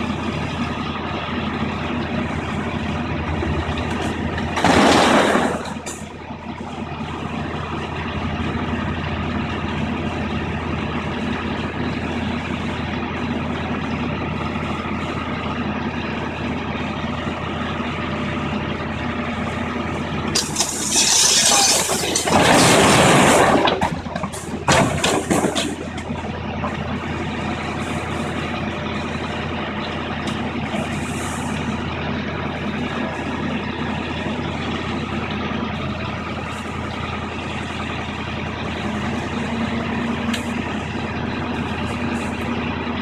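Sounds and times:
diesel excavator engine running: 0:00.0 - 0:43.0
masonry crashing down: 0:04.5 - 0:05.9, 0:20.4 - 0:26.0
falling pieces impacts: 0:04.5 - 0:06.1, 0:20.4 - 0:26.0.

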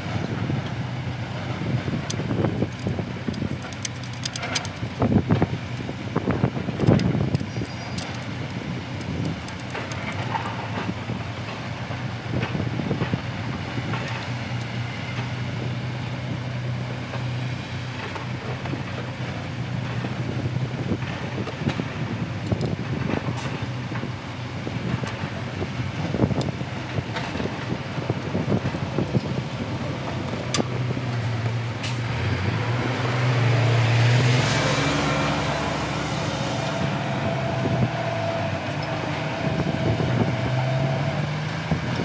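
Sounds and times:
engine humming: 0:00.0 - 0:42.0
clicks and knocks on metal fittings: 0:02.0 - 0:05.9, 0:06.8 - 0:10.9.

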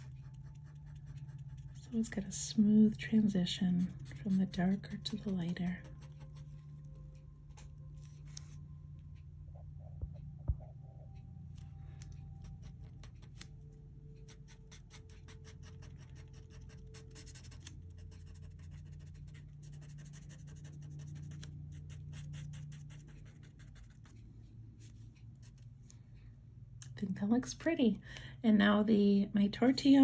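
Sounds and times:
paper stump scratching on paper: 0:00.0 - 0:01.9.

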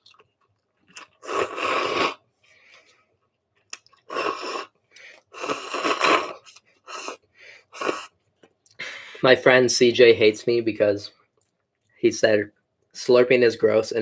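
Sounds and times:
person slurping noodles: 0:01.0 - 0:02.2, 0:04.0 - 0:08.2.

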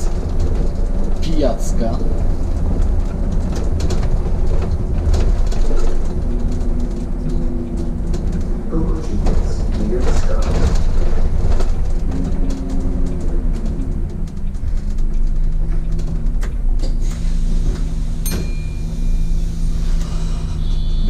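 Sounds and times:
bus engine hum: 0:00.0 - 0:21.0
road noise: 0:00.0 - 0:21.0
single chime: 0:18.3 - 0:19.6.

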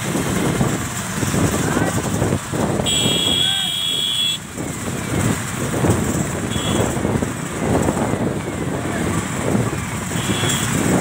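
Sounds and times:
wind buffeting microphone: 0:00.0 - 0:03.7, 0:04.4 - 0:11.0
road noise: 0:00.0 - 0:11.0
vehicle engine: 0:00.0 - 0:11.0.

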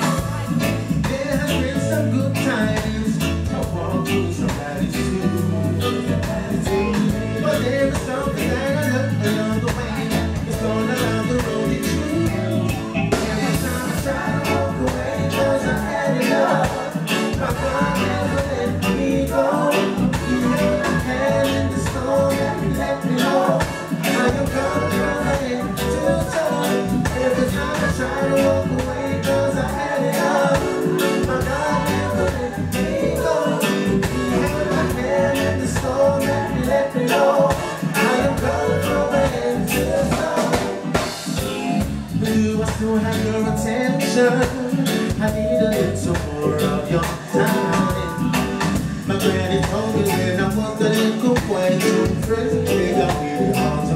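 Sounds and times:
live band playing: 0:00.0 - 0:53.9
man singing lead vocal: 0:00.0 - 0:53.9
women singing backing vocals: 0:12.3 - 0:41.2
drum beat: 0:29.8 - 0:38.6, 0:39.3 - 0:43.0.

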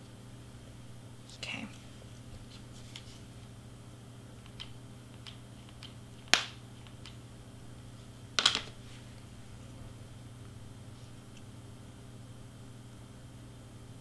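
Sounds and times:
clicks and taps of handling: 0:04.4 - 0:07.2.

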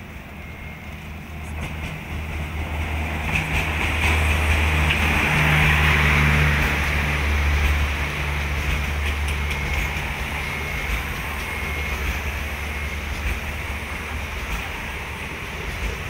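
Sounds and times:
faint high whine: 0:00.0 - 0:01.6
train wheels rushing on rails: 0:00.0 - 0:16.0.

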